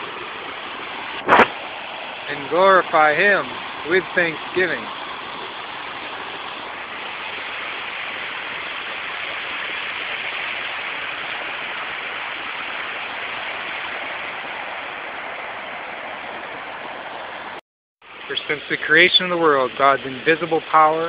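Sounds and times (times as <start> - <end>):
water rushing over rocks: 0.0 - 21.0.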